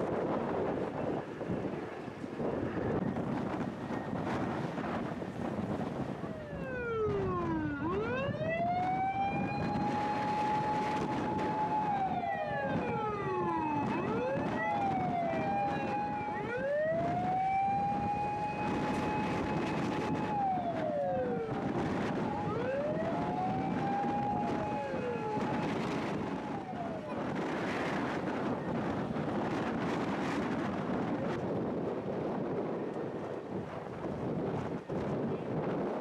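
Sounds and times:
fire engine sirens wailing: 0:00.0 - 0:36.0.

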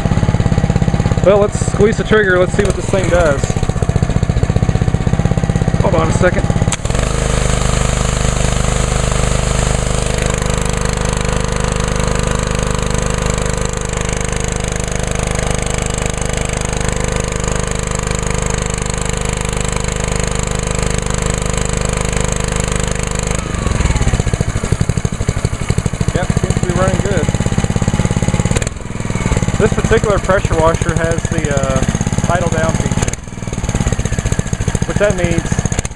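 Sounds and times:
pressure washer engine running: 0:00.0 - 0:35.9
water jet hissing: 0:06.8 - 0:11.6, 0:23.1 - 0:30.8.

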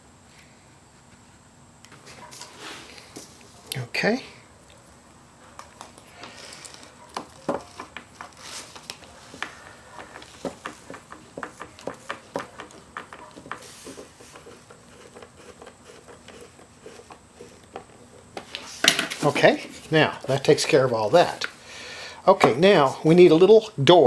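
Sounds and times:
wooden blocks tapping and clicking: 0:07.1 - 0:19.2.

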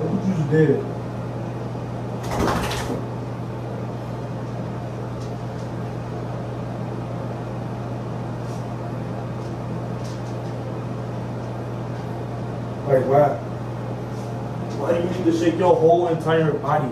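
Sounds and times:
low mechanical hum: 0:00.0 - 0:16.9.

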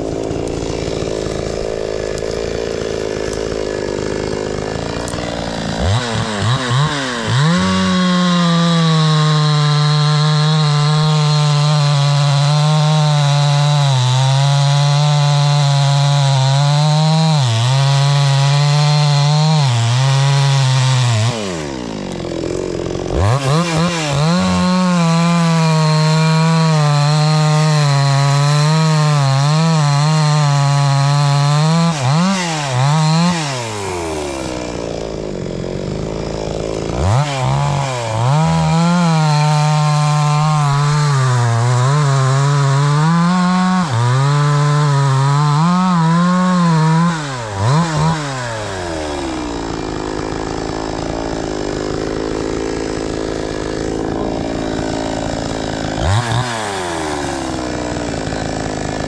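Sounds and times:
chainsaw cutting into tree trunk: 0:00.0 - 0:59.0
chainsaw idling and revving: 0:00.0 - 0:59.0.

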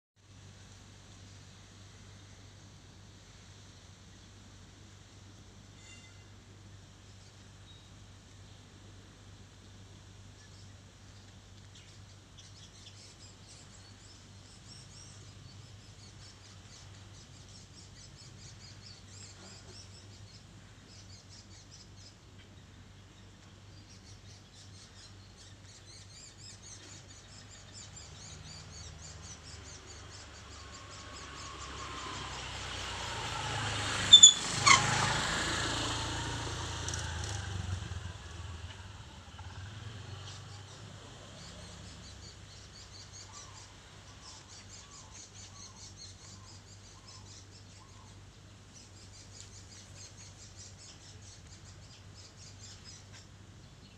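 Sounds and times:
faint bird chirping: 0:00.2 - 0:53.9
vehicle passing: 0:29.8 - 0:42.5.

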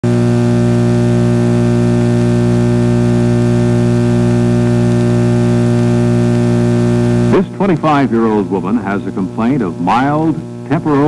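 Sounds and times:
electrical hum with hiss: 0:00.0 - 0:11.0.

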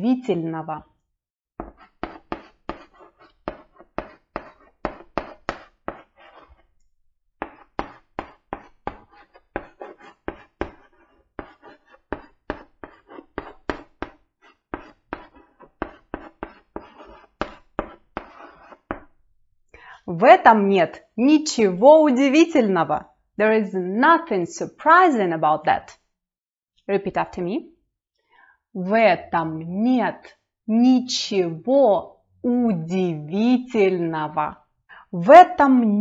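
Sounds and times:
chalk tapping on blackboard: 0:01.6 - 0:06.7, 0:07.4 - 0:19.2.

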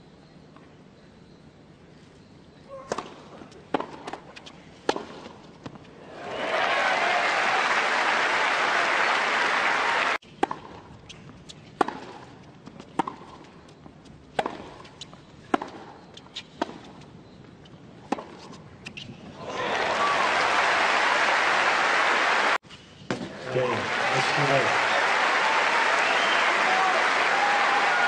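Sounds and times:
racket striking tennis ball: 0:02.9 - 0:05.8, 0:10.4 - 0:12.3, 0:12.9 - 0:13.4, 0:14.4 - 0:15.9, 0:18.0 - 0:19.1
tennis ball bouncing: 0:02.9 - 0:05.9, 0:10.4 - 0:13.5, 0:14.3 - 0:17.0, 0:17.6 - 0:19.1
crowd applause: 0:06.1 - 0:10.2, 0:19.4 - 0:22.6, 0:23.4 - 0:28.0.

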